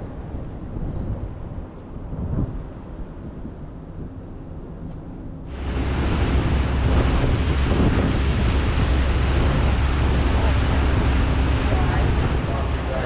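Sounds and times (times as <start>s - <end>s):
wind on microphone: 0.0s - 4.6s, 5.4s - 13.0s
low rumble: 5.2s - 13.0s
water washing: 5.5s - 13.0s.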